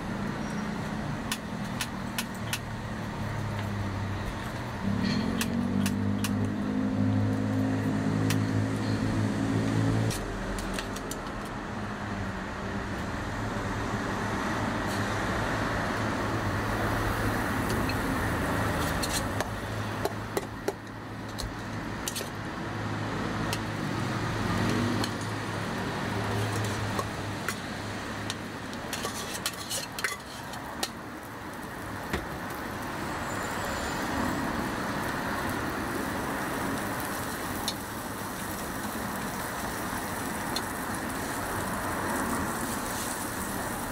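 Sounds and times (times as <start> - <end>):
street traffic hum: 0.0 - 43.9
batter sizzling on a griddle: 16.4 - 20.1, 21.0 - 43.9.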